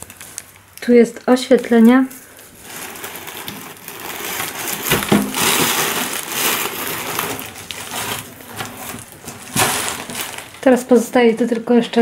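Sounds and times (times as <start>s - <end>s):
plastic packaging crinkling: 0.0s - 12.0s
sharp plastic crackle: 0.0s - 12.0s.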